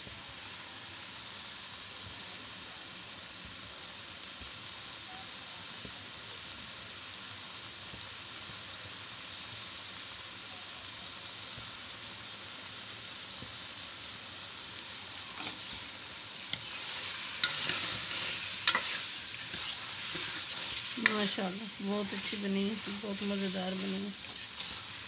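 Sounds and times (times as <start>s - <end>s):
food sizzling in metal pan: 0.0s - 25.0s
steel spoon scraping pan: 15.3s - 15.8s, 16.4s - 25.0s.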